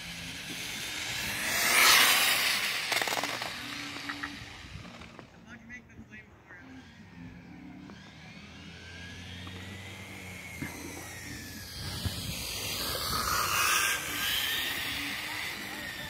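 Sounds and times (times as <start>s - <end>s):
electric motor whine: 0.0s - 5.4s, 6.4s - 16.0s.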